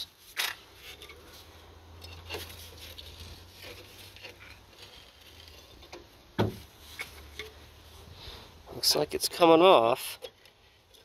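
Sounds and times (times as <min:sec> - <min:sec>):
faint metallic clicks and scrapes: 0:00.0 - 0:07.7, 0:10.1 - 0:11.0.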